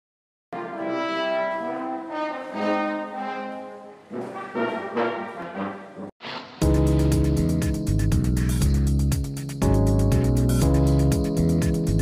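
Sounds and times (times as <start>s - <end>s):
intro jingle music: 6.6s - 12.0s.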